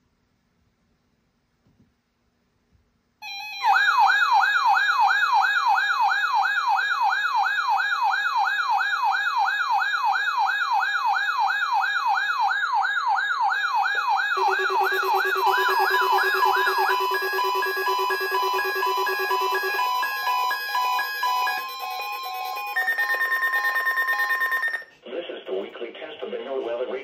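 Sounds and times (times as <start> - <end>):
whooping siren tone: 3.2 - 24.8
steady alarm tone: 3.2 - 24.9
beeping tones: 14.4 - 24.9.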